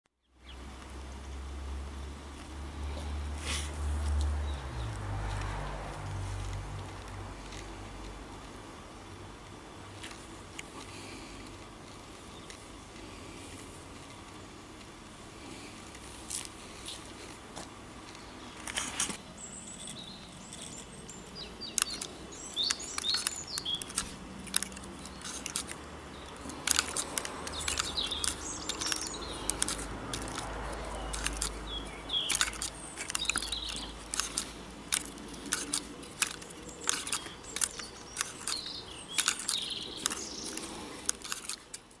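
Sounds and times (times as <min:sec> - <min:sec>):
birds chirping: 0:02.8 - 0:42.0
wooden whirligig clicking: 0:19.9 - 0:42.0.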